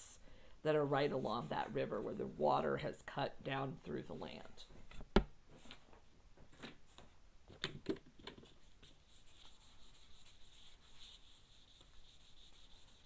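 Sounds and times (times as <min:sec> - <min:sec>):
marker scratching on paper: 0:08.7 - 0:13.0.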